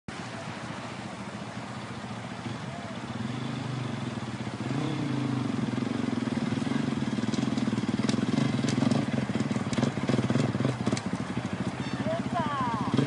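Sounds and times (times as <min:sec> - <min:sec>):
dirt bike engine at low revs: 0:00.1 - 0:13.0
quad engine: 0:00.1 - 0:13.0
stones clicking under tyres: 0:07.2 - 0:11.8.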